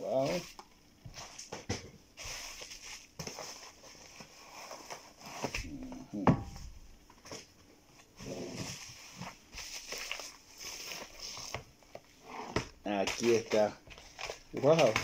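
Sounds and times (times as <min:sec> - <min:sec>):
bubble wrap crinkling: 0:02.2 - 0:05.9, 0:08.2 - 0:12.2, 0:12.8 - 0:15.0.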